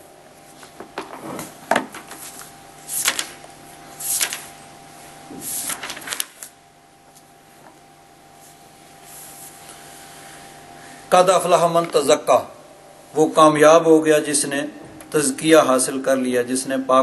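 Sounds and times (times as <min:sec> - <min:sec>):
faint steady hum: 0:00.0 - 0:17.0
pages turning: 0:00.6 - 0:04.6, 0:05.3 - 0:07.8.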